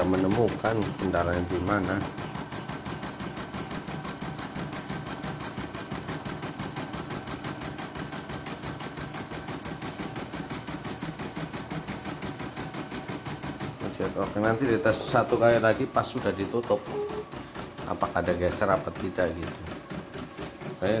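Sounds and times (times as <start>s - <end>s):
embroidery machine stitching: 0.0s - 21.0s.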